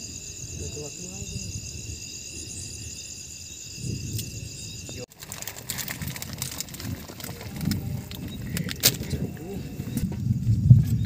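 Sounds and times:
night insects trilling: 0.0 - 11.0
clicks and clatter around pot: 5.1 - 9.2.

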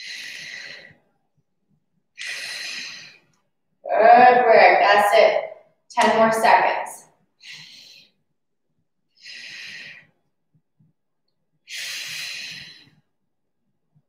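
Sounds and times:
woman breathing hard: 0.0 - 1.1, 2.2 - 3.3, 7.4 - 8.2, 9.1 - 10.2, 11.7 - 13.1.

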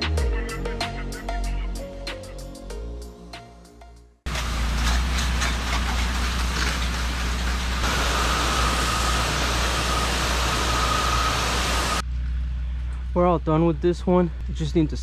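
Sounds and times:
pressure washer drone: 4.3 - 12.0
water spray hissing: 6.0 - 12.0
thin steady whine: 7.8 - 13.0.

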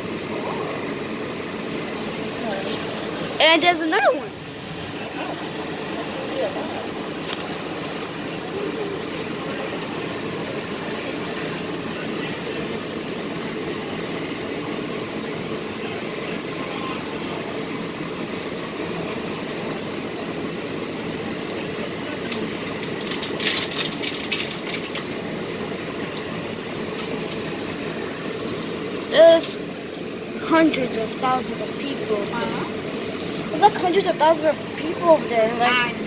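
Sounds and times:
monorail car running hum: 0.0 - 36.0
sharp clicks and rattles: 22.3 - 25.2.

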